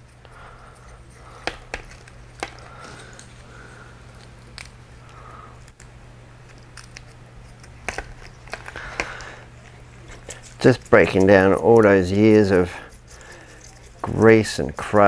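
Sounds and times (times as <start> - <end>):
brush scrubbing plastic: 7.4 - 15.0.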